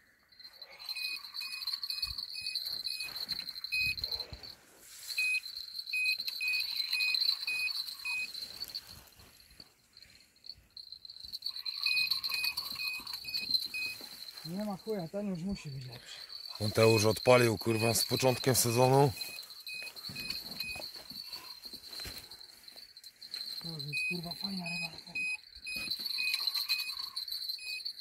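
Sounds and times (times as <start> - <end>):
insect chirps: 0.0 - 28.0
insects trilling: 0.0 - 28.0.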